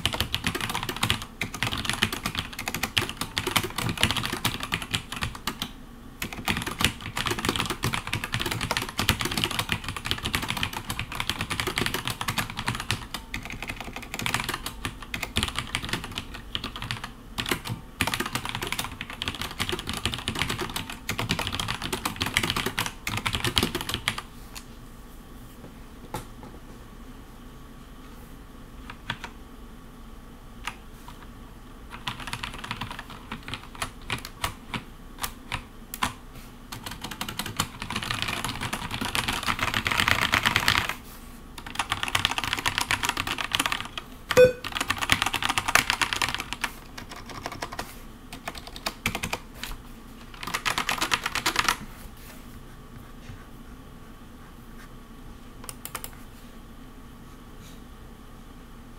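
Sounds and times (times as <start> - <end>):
mechanical keyboard typing: 0.0 - 24.2, 31.9 - 41.0, 41.6 - 49.4, 50.3 - 51.8, 55.7 - 56.2.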